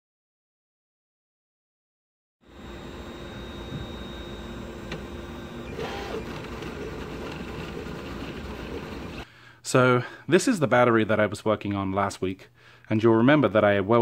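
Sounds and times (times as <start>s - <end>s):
cooling fan hum: 2.5s - 9.3s
stepper motors whirring: 2.5s - 9.3s.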